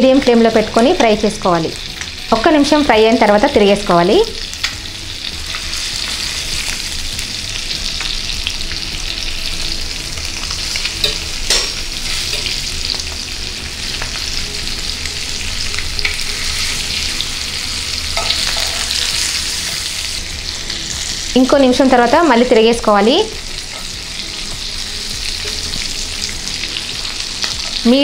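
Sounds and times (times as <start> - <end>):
fish sizzling in a pan: 0.0 - 28.0
utensils clattering: 11.0 - 12.6.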